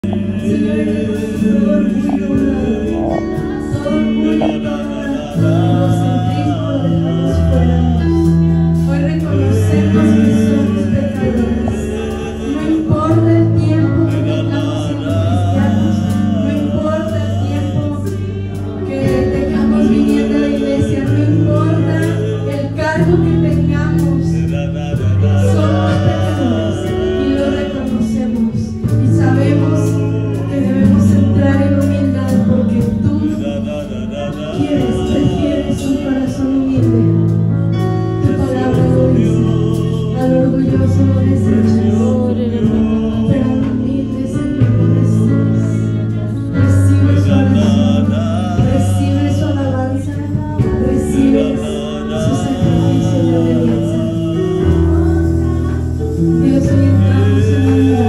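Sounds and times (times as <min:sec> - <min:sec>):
electric keyboard chords: 0:00.0 - 0:58.0
woman singing into a microphone: 0:00.0 - 0:58.0.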